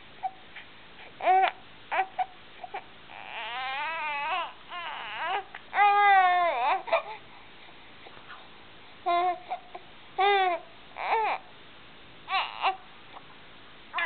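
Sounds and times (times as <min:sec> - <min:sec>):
baby squeaking and crying: 0:01.2 - 0:07.2, 0:12.3 - 0:12.8.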